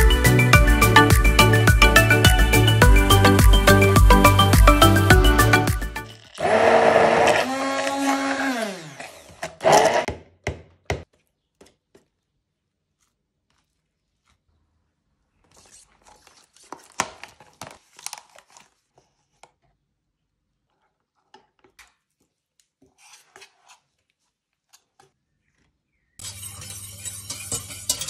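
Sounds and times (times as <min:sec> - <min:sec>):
plastic scraper scraping mesh: 0:06.3 - 0:10.1, 0:22.8 - 0:25.1
paper crinkling: 0:12.7 - 0:19.8, 0:20.7 - 0:25.1.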